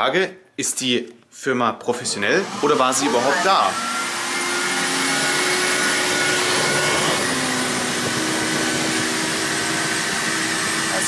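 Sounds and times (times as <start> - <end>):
spot cleaner motor running: 2.4 - 11.0
nozzle sucking water from carpet: 3.4 - 11.0.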